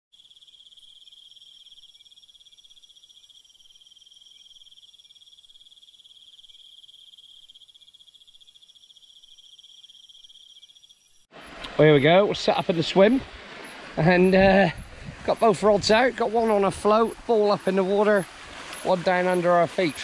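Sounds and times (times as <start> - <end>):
fainter higher insect trill: 0.1 - 20.0
insect chorus trilling: 0.1 - 20.0.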